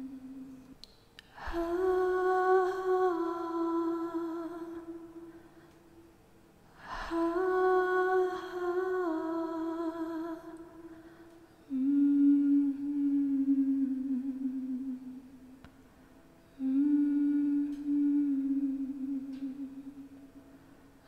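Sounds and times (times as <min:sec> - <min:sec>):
woman humming: 0:11.6 - 0:15.4, 0:16.6 - 0:20.1.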